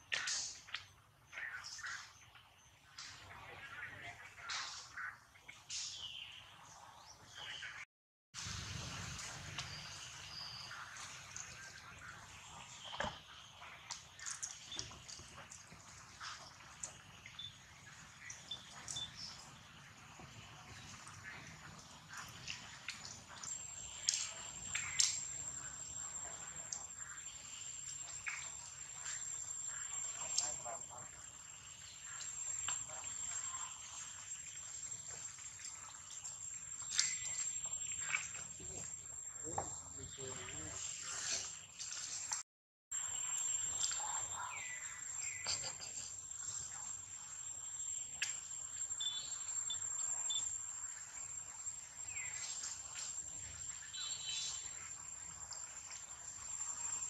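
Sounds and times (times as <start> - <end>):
chirps and clicks: 0.0 - 3.3, 9.2 - 19.6, 20.2 - 31.1, 31.8 - 41.5, 43.6 - 46.9, 47.9 - 54.8
insect drone: 8.4 - 42.3, 43.0 - 57.0.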